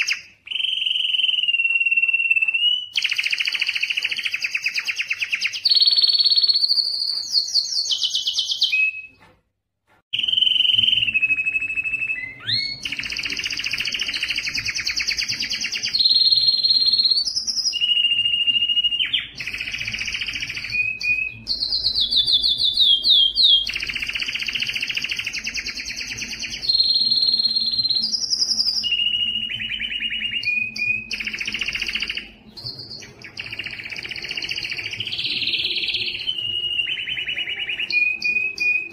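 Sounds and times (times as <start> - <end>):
canary singing trills: 10.2 - 38.9.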